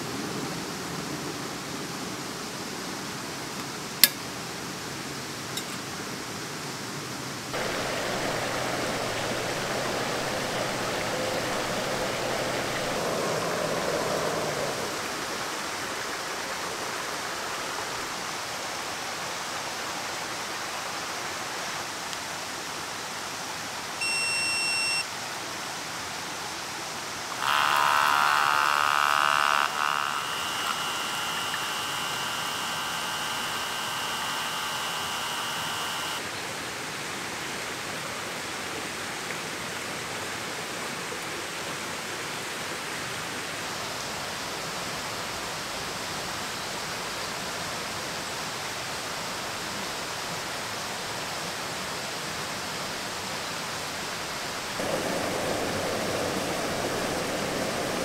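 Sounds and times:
electric pump humming: 0:07.6 - 0:15.3, 0:24.0 - 0:25.0, 0:27.3 - 0:36.2
machine beep: 0:24.0 - 0:25.0, 0:29.6 - 0:36.2.

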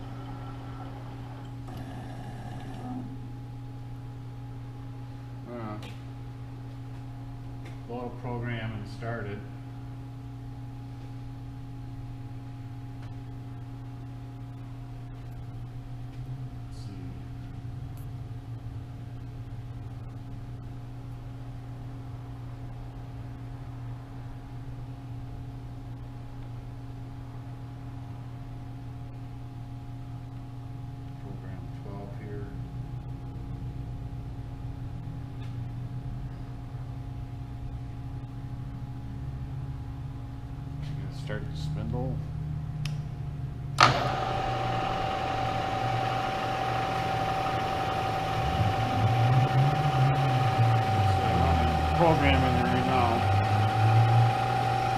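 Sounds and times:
motor hum: 0:00.0 - 0:04.5, 0:43.6 - 0:54.9
mill spindle whine: 0:00.0 - 0:05.4, 0:43.8 - 0:54.9
machine low hum: 0:00.0 - 0:54.9.

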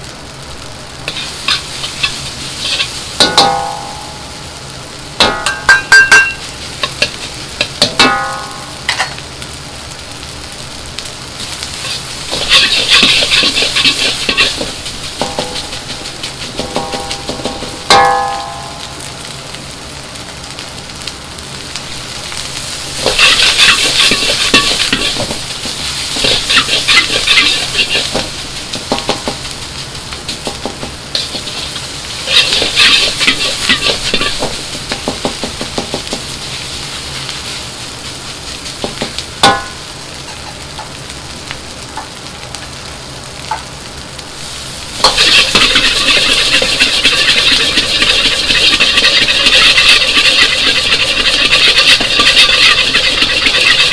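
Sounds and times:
rice sizzling in a wok: 0:00.0 - 0:53.9
metal ladle scraping a wok: 0:01.1 - 0:03.6, 0:05.4 - 0:07.8, 0:11.8 - 0:18.5, 0:23.0 - 0:28.4, 0:30.3 - 0:34.6, 0:45.0 - 0:53.9
ladle clanking against wok: 0:05.2 - 0:09.2, 0:11.8 - 0:18.8, 0:23.0 - 0:29.5, 0:30.2 - 0:36.3, 0:45.0 - 0:53.9.

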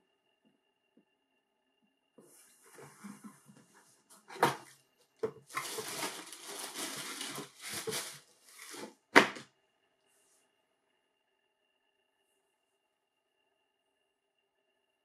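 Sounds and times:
tissue paper crinkling: 0:05.4 - 0:09.0.

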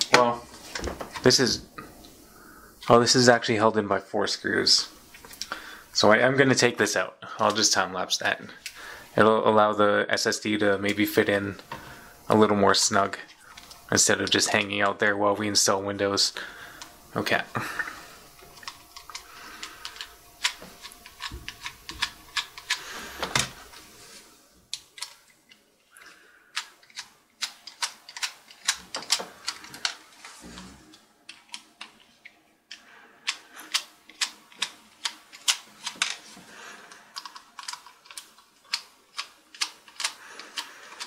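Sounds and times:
screwdriver clicking on screws: 0:37.2 - 0:41.0.

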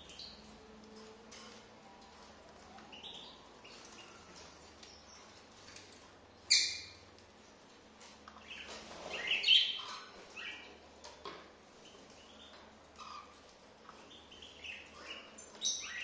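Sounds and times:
cockatiels chirping: 0:14.1 - 0:16.0.

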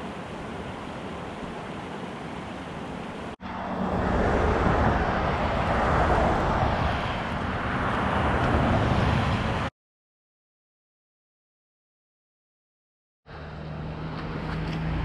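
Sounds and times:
highway traffic passing: 0:00.0 - 0:09.7, 0:13.3 - 0:15.0.

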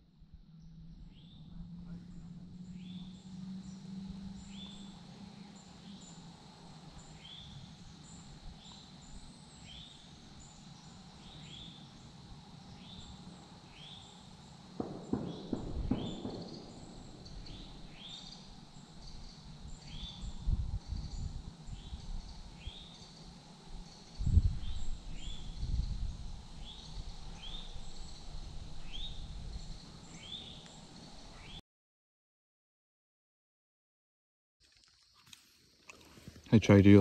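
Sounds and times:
low thumps: 0:14.8 - 0:18.0.

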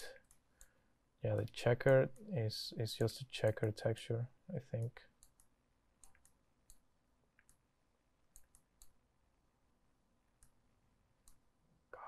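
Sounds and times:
computer mouse clicks: 0:00.2 - 0:00.7, 0:04.8 - 0:07.6, 0:08.3 - 0:09.0, 0:11.2 - 0:11.4.

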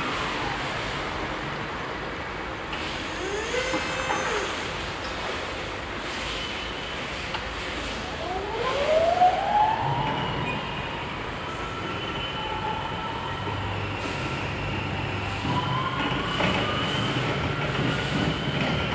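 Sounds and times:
electric motor whining: 0:03.0 - 0:04.7.

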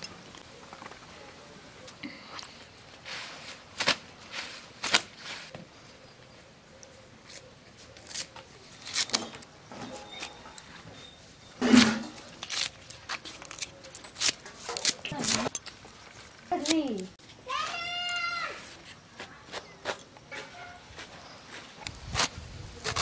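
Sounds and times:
leaves dropped into basket: 0:03.1 - 0:05.6
leaves snapping and rustling: 0:03.5 - 0:05.2, 0:07.2 - 0:09.5, 0:11.8 - 0:18.4.

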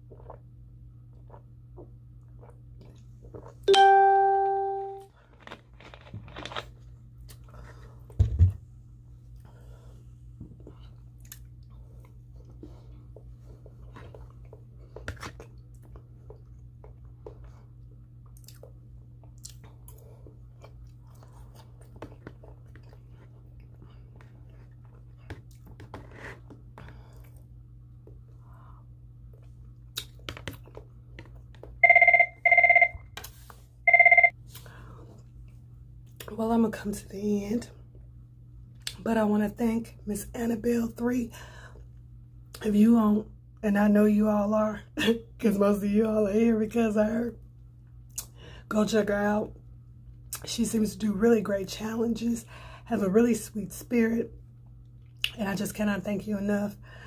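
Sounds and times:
person chewing and crunching food: 0:00.0 - 0:03.7, 0:05.1 - 0:08.2, 0:10.6 - 0:31.9
low electrical hum: 0:00.0 - 0:57.0.

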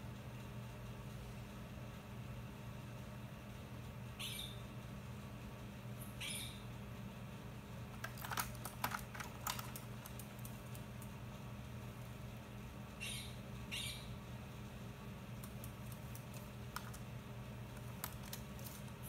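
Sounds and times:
high bird chirps: 0:04.2 - 0:04.6, 0:06.1 - 0:06.6, 0:13.0 - 0:14.2
keyboard keys clicking: 0:08.0 - 0:11.1, 0:15.4 - 0:17.1, 0:17.7 - 0:18.9.

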